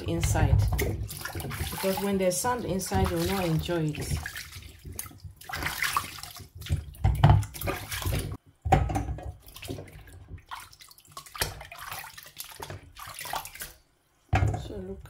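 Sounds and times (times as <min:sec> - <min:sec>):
water splashing and sloshing: 0:00.0 - 0:15.0.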